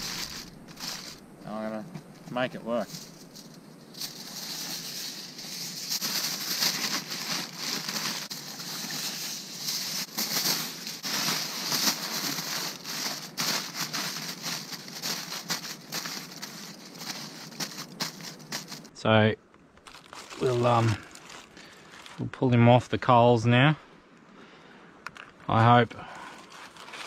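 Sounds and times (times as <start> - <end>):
aluminium foil crinkling: 0.0 - 1.2, 2.7 - 18.9, 19.8 - 22.3, 26.1 - 27.0.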